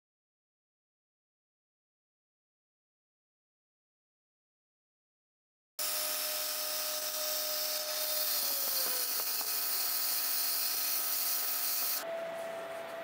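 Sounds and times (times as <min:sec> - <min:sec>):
router spindle high whine: 0:05.8 - 0:13.0
hiss of metal cutting: 0:06.4 - 0:12.0.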